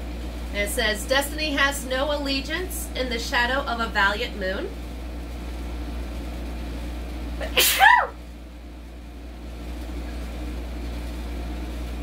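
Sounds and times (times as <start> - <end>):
woman sneezing: 7.4 - 8.2.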